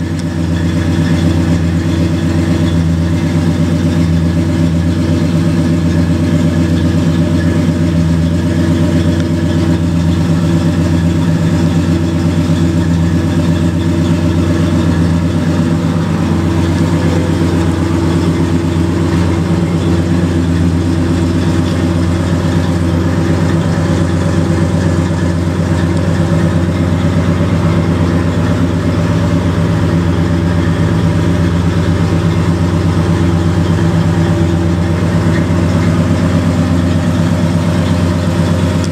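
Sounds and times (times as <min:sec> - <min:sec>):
truck engine idling: 0:00.0 - 0:38.9.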